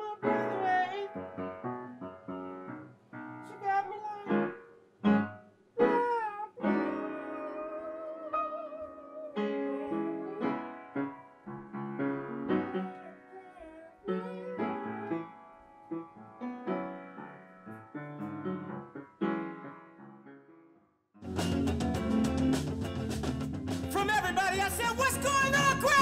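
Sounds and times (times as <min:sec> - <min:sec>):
piano playing chords: 0:00.0 - 0:26.0.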